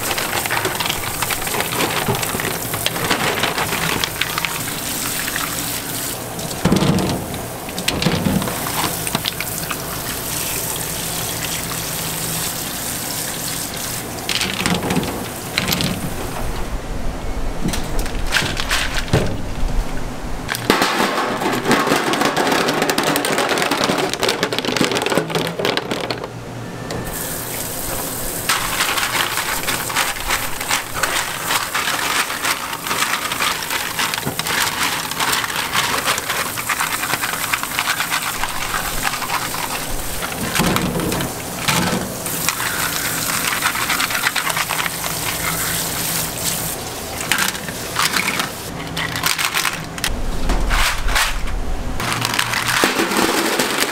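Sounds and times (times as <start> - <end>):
shells clattering in metal sink: 0.0 - 11.6, 14.2 - 16.1, 27.8 - 50.1, 52.0 - 53.9
tap water running: 0.0 - 16.2.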